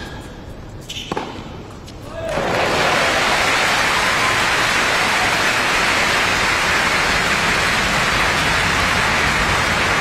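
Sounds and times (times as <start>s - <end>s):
crowd applauding: 2.3s - 10.0s.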